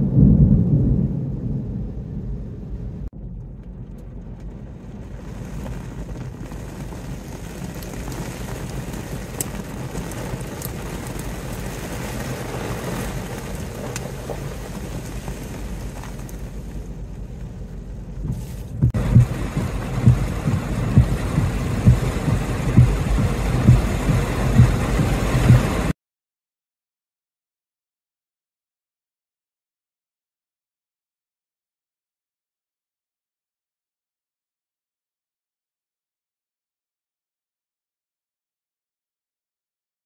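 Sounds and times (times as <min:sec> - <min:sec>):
storm wind: 0:00.0 - 0:25.9
wind-driven rain: 0:00.0 - 0:25.9
steady low rumble: 0:00.0 - 0:26.0
gusts thumping on microphone: 0:18.2 - 0:25.9.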